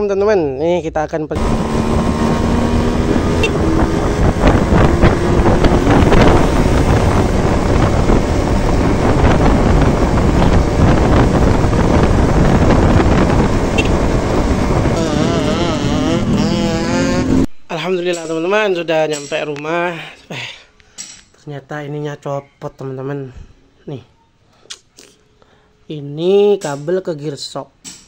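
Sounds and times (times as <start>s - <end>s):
motorcycle engine running: 1.4s - 17.5s
wind buffeting microphone: 1.4s - 17.5s.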